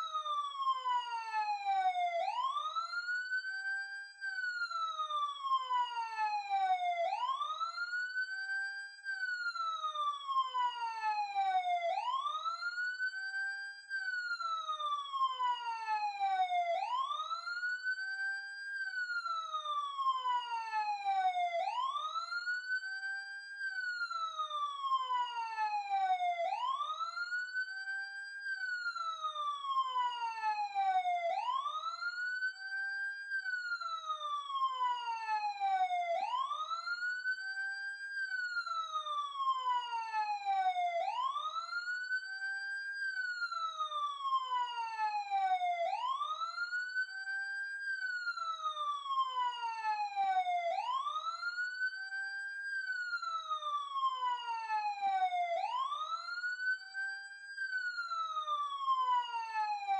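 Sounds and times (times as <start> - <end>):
emergency siren wailing: 0.0 - 59.9.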